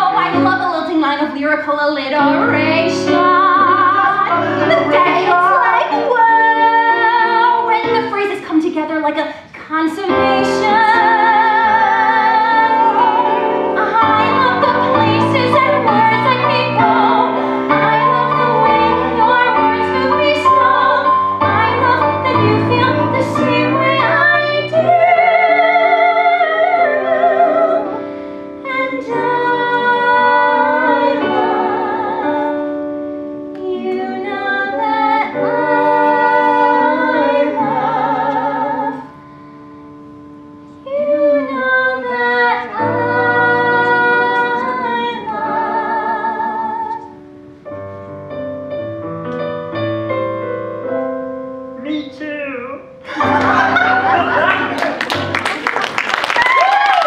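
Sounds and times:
person singing with vibrato: 0:00.0 - 0:32.6
piano accompaniment: 0:00.0 - 0:57.0.

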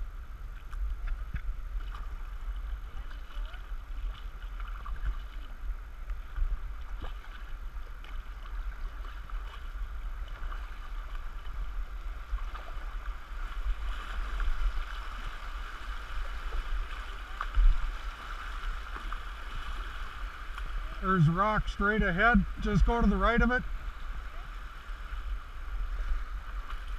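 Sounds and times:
rapids rushing: 0:10.0 - 0:26.9.

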